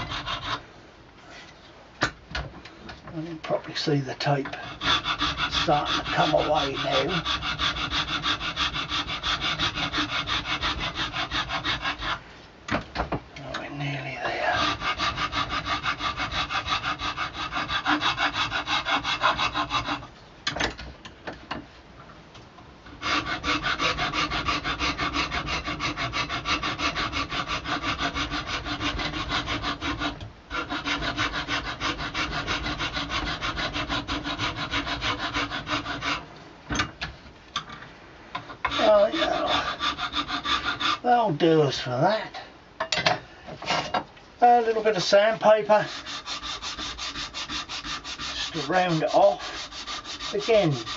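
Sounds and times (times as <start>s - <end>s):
file rasping on antler and wood: 0.0s - 0.6s, 4.3s - 12.2s, 14.2s - 20.1s, 23.0s - 36.3s, 38.4s - 41.6s, 45.2s - 50.9s.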